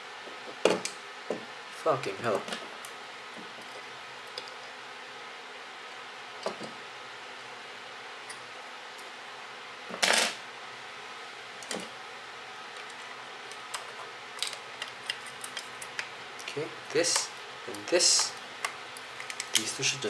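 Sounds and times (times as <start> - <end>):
small metal parts clicking: 13.6 - 18.4.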